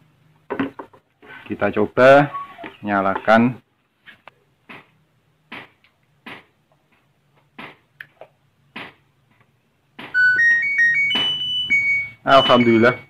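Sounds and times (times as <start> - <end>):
electronic beep melody: 10.2 - 13.0.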